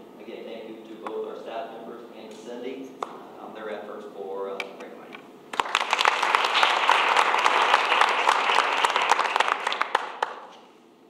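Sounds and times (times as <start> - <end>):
crowd applauding: 5.5 - 10.6.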